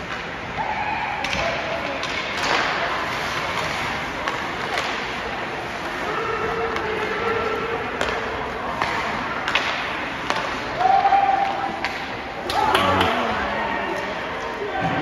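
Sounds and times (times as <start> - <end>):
hockey sticks and puck clacking: 0.0 - 13.3
voices calling out: 12.4 - 14.2.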